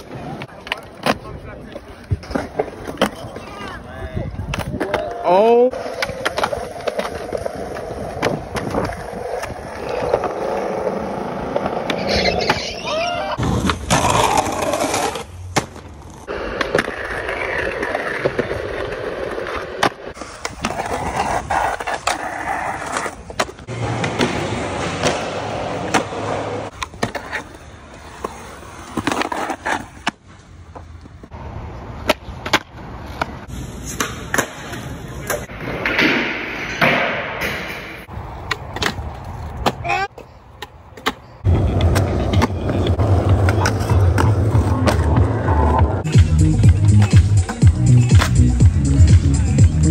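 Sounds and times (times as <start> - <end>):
skateboard wheels rolling on concrete: 0.0 - 49.9
skateboard clacks: 38.4 - 49.6.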